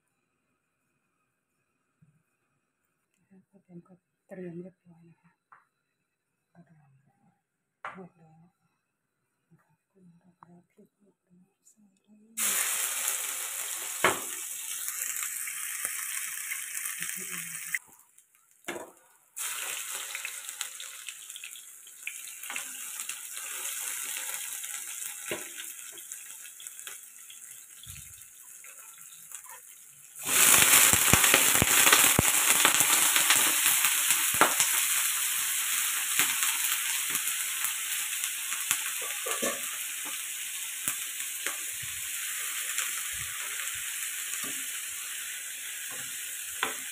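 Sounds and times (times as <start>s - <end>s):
food sizzling in hot oil: 12.4s - 46.9s.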